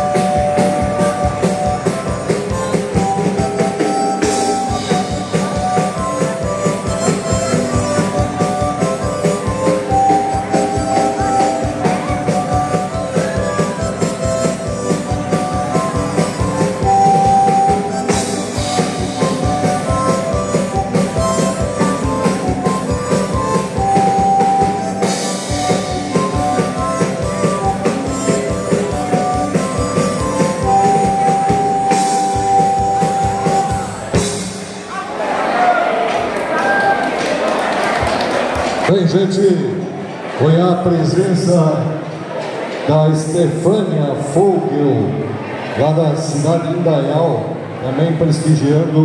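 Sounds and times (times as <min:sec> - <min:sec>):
bandoneon melody: 0:00.0 - 0:34.9.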